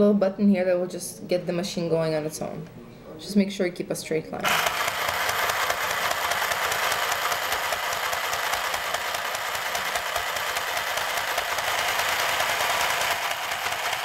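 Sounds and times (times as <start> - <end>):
sewing machine rattling: 4.4 - 14.0.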